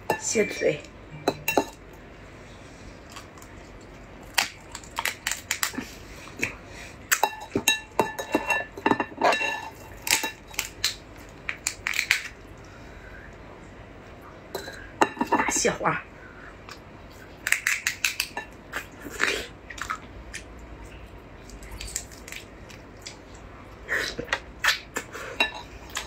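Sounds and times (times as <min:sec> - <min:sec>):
crab shell cracking: 0:04.2 - 0:05.9, 0:10.0 - 0:12.4, 0:17.4 - 0:18.6, 0:21.5 - 0:23.2.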